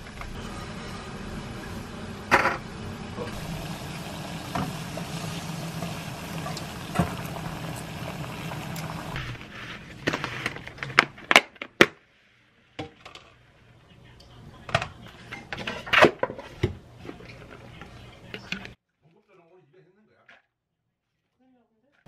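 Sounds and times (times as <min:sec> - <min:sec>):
water boiling in a pot: 0:00.0 - 0:10.8.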